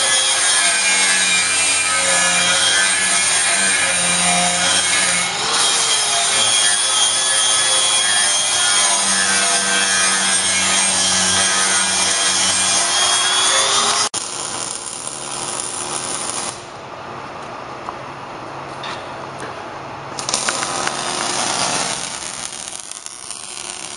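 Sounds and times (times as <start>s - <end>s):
angle grinder grinding metal: 0.0s - 14.1s.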